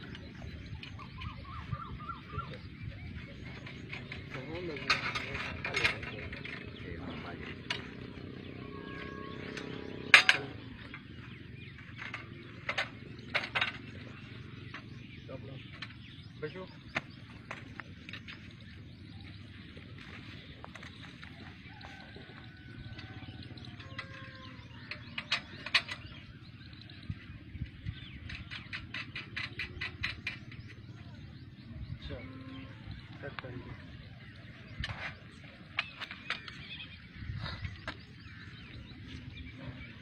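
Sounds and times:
low steady rumble: 0.0s - 40.0s
metal frame clanking: 3.1s - 18.5s, 22.8s - 26.3s, 28.1s - 31.0s
metal climbing frame clicks: 28.2s - 30.7s.

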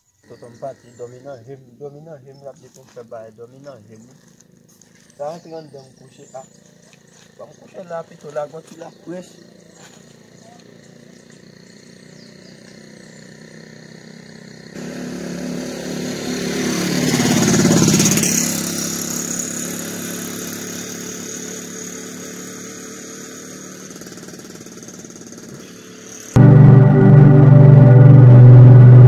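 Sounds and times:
vehicle engine passing by: 11.5s - 19.5s, 26.4s - 29.0s.

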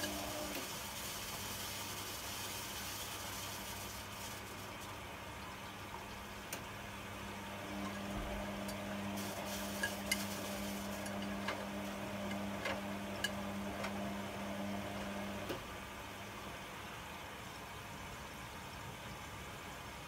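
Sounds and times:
washing machine motor hum: 0.0s - 16.7s.

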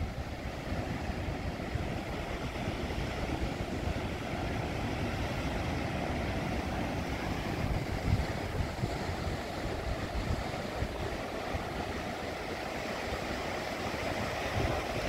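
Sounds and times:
heavy surf breaking on rocks: 0.0s - 15.0s
wind on microphone: 0.0s - 15.0s.

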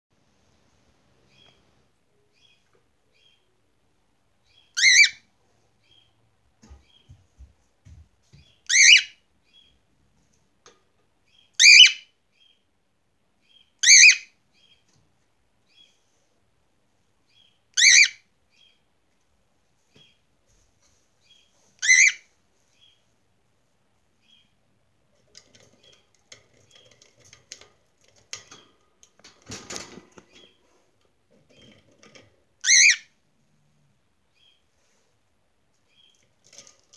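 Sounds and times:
soft bird chirps: 1.2s - 3.6s, 8.4s - 9.8s, 13.4s - 14.9s, 15.6s - 16.3s, 17.2s - 18.9s, 21.2s - 23.1s, 24.2s - 24.7s, 34.3s - 35.1s, 35.8s - 36.6s
cockatiel screaming: 32.6s - 33.1s.

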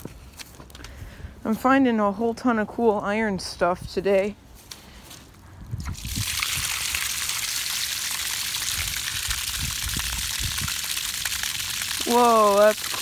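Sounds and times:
hose nozzle spraying water: 5.8s - 13.0s.

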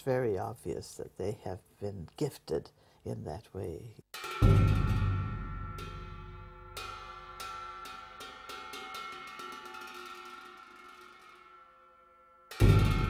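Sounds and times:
light metallic strikes: 4.1s - 13.0s
deep ringing metal stroke: 4.2s - 9.7s, 11.1s - 13.0s.

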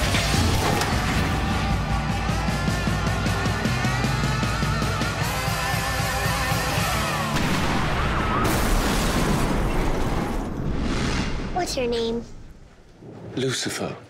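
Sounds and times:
dramatic trailer music: 0.0s - 8.0s.

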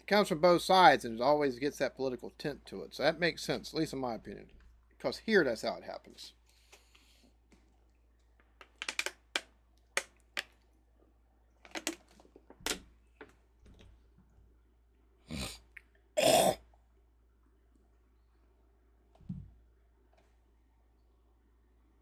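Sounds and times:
man gulping from a bottle: 15.2s - 16.7s.

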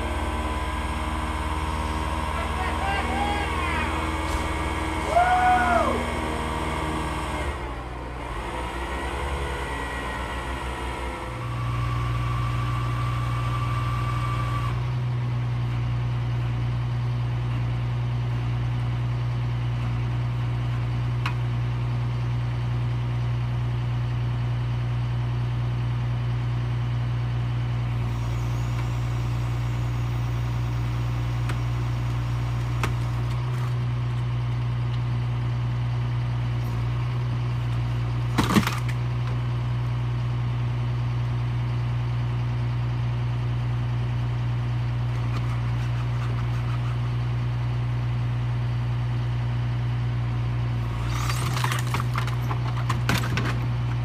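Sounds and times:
truck engine humming: 0.0s - 23.6s, 26.5s - 54.0s
short squeals rising and falling: 0.1s - 7.6s.

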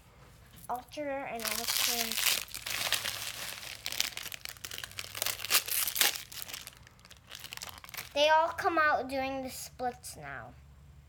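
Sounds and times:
plastic wrapping crinkling and tearing: 1.3s - 8.2s.

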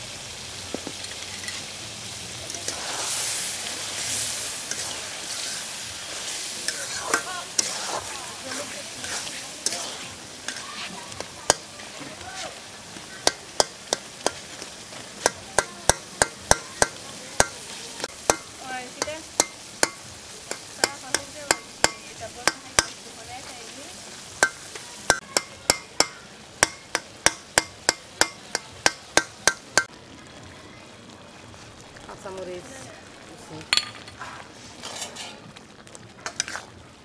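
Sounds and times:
low sizzle from pot: 0.0s - 37.0s
metal spatula scraping a pot: 2.5s - 17.6s, 34.1s - 35.5s, 36.2s - 36.7s.

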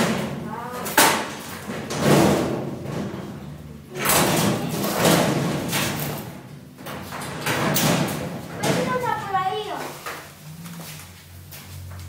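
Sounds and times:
knocking and scraping of cabinet: 4.0s - 6.1s, 6.8s - 9.4s.

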